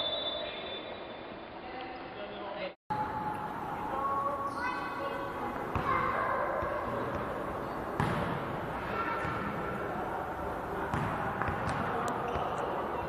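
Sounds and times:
basketball knocks: 8.0s - 8.4s, 10.9s - 12.5s.

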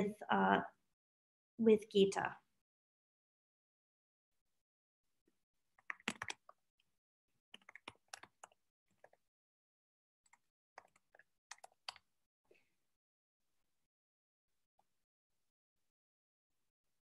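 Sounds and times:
typing on computer keyboard: 5.8s - 6.6s, 7.5s - 9.2s, 10.3s - 12.0s.

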